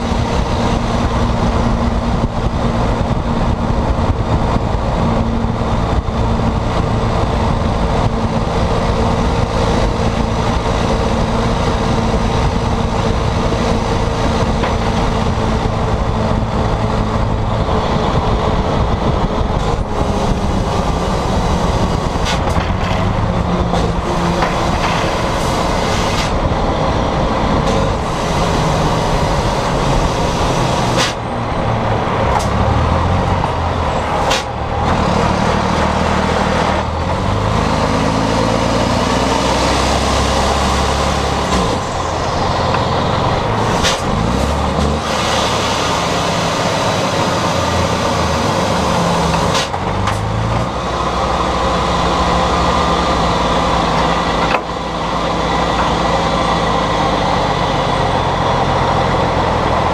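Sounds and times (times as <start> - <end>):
truck diesel engine drone: 0.0 - 59.9.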